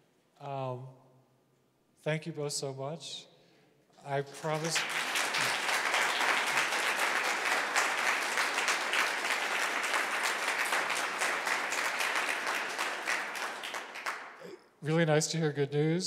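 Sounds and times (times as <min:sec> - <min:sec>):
audience applauding: 0:04.2 - 0:14.6.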